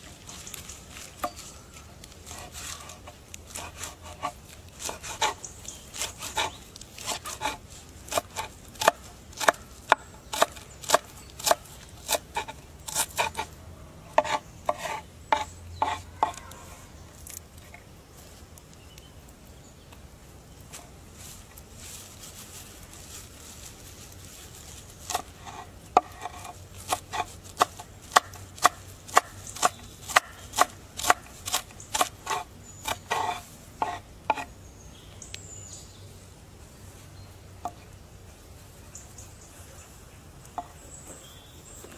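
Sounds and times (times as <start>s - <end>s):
knife chopping on wooden board: 6.0s - 13.4s, 14.2s - 16.4s, 25.1s - 34.5s.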